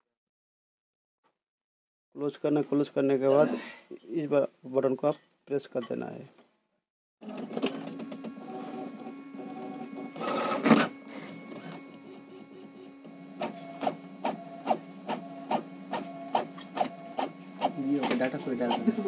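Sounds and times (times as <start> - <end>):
printer clicking strokes: 7.2 - 19.0
printer motor whirring: 7.2 - 19.0.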